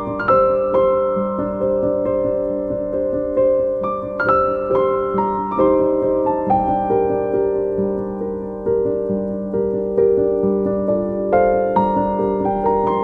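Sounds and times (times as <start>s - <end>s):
slow piano melody: 0.0s - 13.0s.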